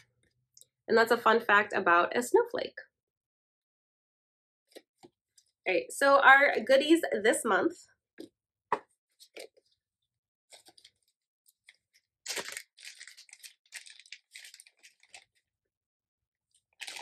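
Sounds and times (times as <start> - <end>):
packaging clicks and rustles: 10.5 - 15.4, 16.5 - 17.0
packaging crinkling and tearing: 10.5 - 15.4, 16.5 - 17.0.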